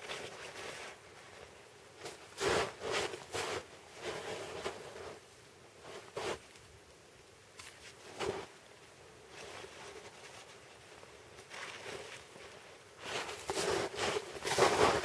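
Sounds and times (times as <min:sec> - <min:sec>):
pine needles rustling: 0:09.3 - 0:15.0
nylon jacket sleeve rustling: 0:11.4 - 0:15.0.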